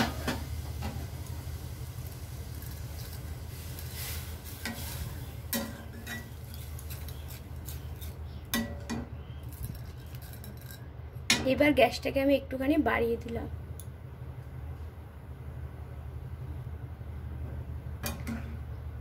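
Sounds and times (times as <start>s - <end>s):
steady low hum: 0.0s - 19.0s
metal spatula scraping pan: 4.0s - 9.0s.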